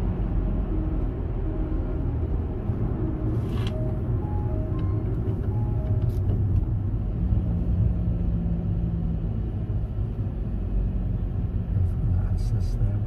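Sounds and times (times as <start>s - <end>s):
car driving in traffic: 0.0s - 13.0s.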